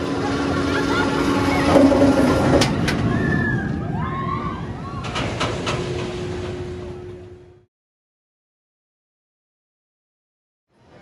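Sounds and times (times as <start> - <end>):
roller coaster rumbling on track: 0.0 - 7.7.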